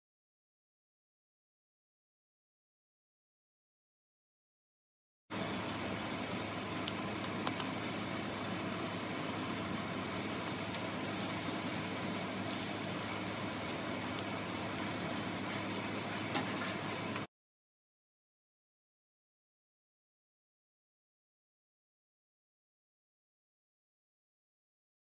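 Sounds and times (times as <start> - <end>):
sauce bubbling and sizzling: 5.3 - 17.3.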